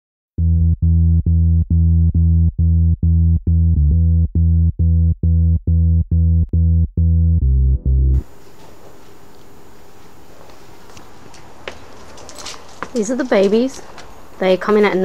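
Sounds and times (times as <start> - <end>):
repeated deep synthesizer note: 0.4 - 8.3.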